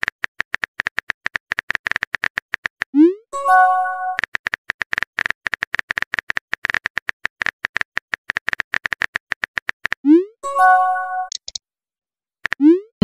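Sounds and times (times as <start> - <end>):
chime tone: 3.4 - 4.2, 10.4 - 11.3.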